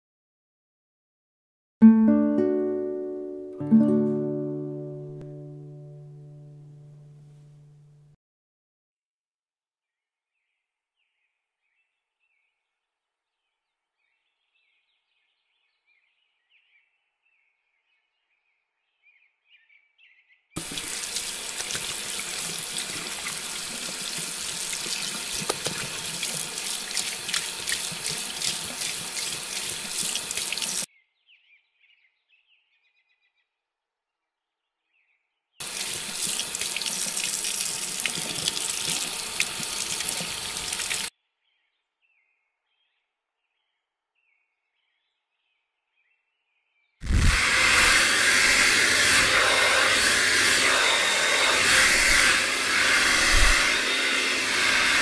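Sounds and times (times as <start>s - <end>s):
tap water splashing into sink: 20.6s - 30.8s, 35.6s - 41.1s.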